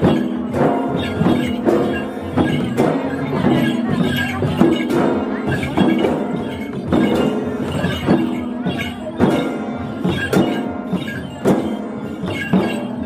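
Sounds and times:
barrel drums beaten by hand: 0.0s - 13.0s.

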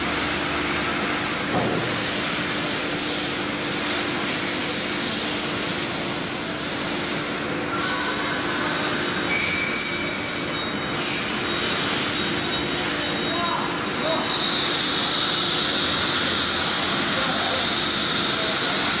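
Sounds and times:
cnc router hissing and humming: 0.0s - 19.0s
thin high whining tones: 7.7s - 16.3s.

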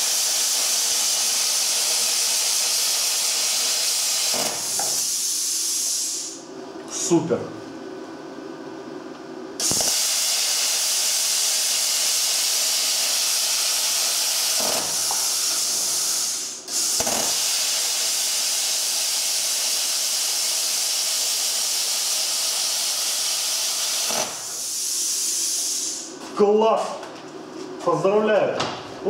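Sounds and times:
plasma cutter hissing: 0.0s - 6.4s, 9.6s - 26.1s.

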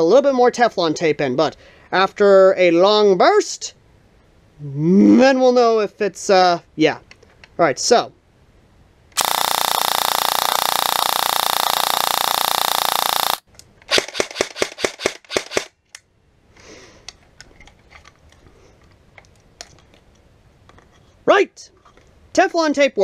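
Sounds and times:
airsoft rifle full-auto burst: 9.2s - 15.7s.

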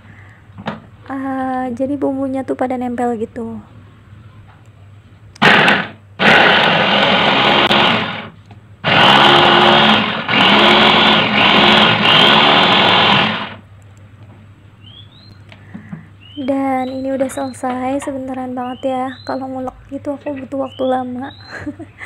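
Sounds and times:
electric chopper whirring: 5.4s - 13.6s.

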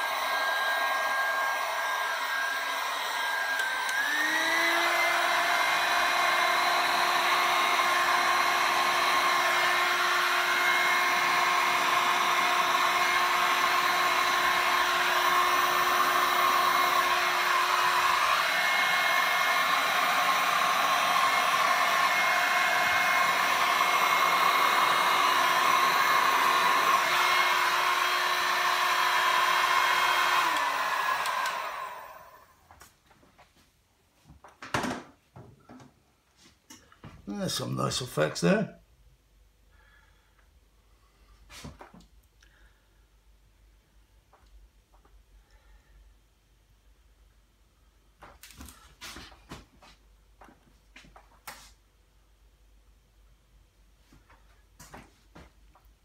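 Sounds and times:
heat gun fan blowing: 0.0s - 32.7s.

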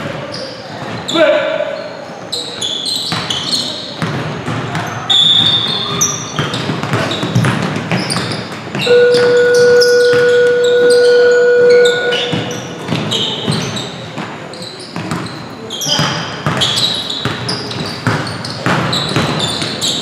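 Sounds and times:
sneakers squeaking: 0.0s - 20.0s
basketball dribbling on wood floor: 6.4s - 10.6s, 12.1s - 13.7s
buzzer tone: 8.8s - 12.7s.

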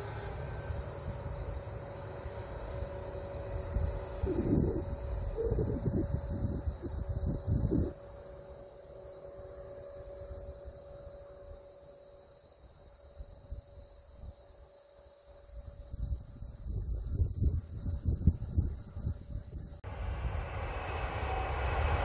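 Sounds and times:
insects chirring: 0.0s - 22.0s
low rumble: 16.8s - 22.0s.

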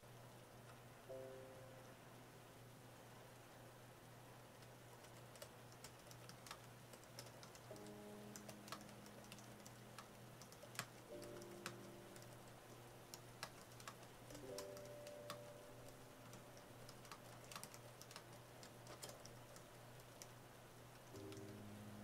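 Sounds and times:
soft piano music: 1.1s - 2.1s, 7.6s - 19.3s, 21.1s - 22.0s
keyboard typing clicks: 4.6s - 20.3s, 21.0s - 21.6s.

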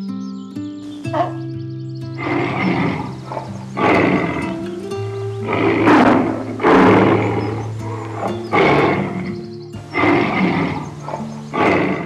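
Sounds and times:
background music: 0.0s - 12.0s
tiger roaring: 2.2s - 4.8s, 5.4s - 12.0s.

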